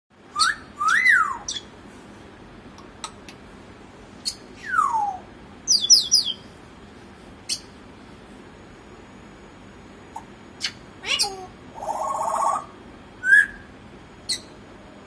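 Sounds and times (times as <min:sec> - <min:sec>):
parrot whistling: 0:00.3 - 0:01.7, 0:04.2 - 0:06.4, 0:10.6 - 0:13.7
parrot chirps: 0:00.3 - 0:01.8, 0:04.2 - 0:06.4, 0:07.4 - 0:07.7, 0:10.1 - 0:14.6
parrot clicks: 0:02.8 - 0:03.4.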